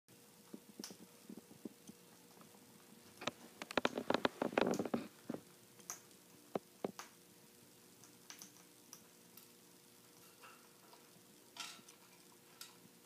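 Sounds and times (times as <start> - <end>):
parrot crunching pellets: 3.1 - 7.1.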